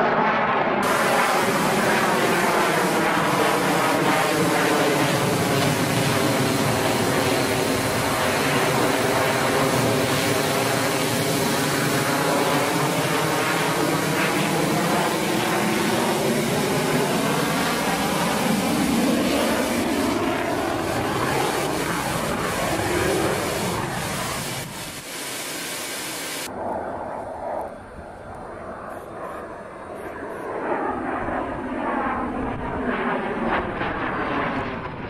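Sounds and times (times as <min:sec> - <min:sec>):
jet engine droning with whine: 0:00.0 - 0:35.0
rushing air: 0:00.8 - 0:12.9, 0:16.2 - 0:26.5.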